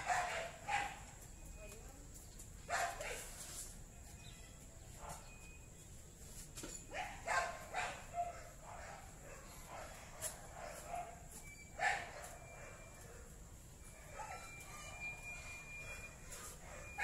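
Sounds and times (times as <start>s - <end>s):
dog barking: 0.0s - 1.0s, 2.7s - 3.3s, 6.9s - 13.3s, 13.9s - 17.0s.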